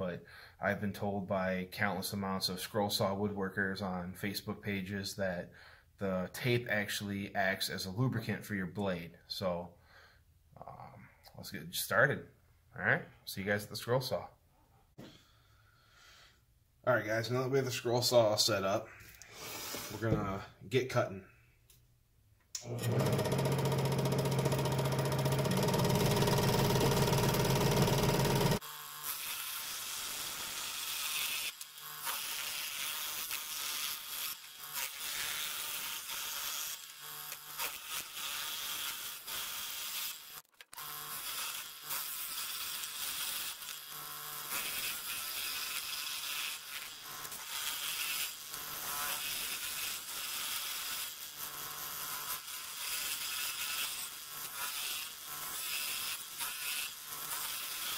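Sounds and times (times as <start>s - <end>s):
scroll saw running: 22.6s - 57.9s.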